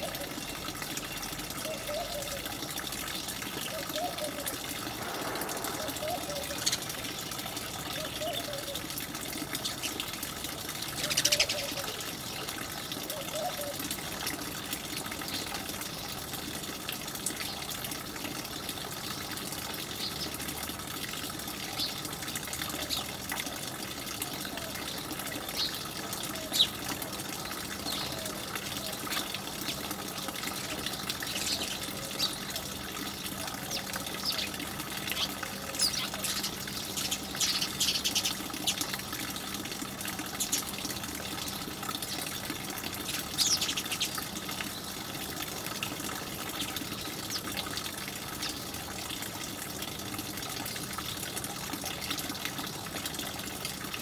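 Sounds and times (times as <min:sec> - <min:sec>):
steady rushing hiss: 0:04.8 - 0:07.4
sparrows chirping: 0:05.0 - 0:08.9, 0:11.0 - 0:13.8, 0:33.7 - 0:38.8, 0:43.1 - 0:44.9.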